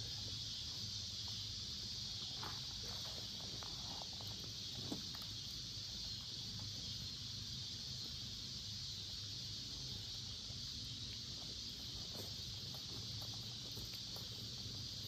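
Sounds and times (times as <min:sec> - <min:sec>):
chorus of insects: 0:00.0 - 0:15.0.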